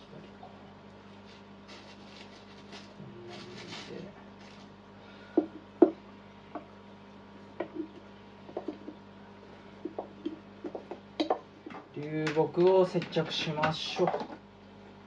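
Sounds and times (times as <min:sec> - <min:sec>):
faint steady hum: 0:00.0 - 0:15.0
wood knocking on glass: 0:07.6 - 0:09.0, 0:09.8 - 0:11.4.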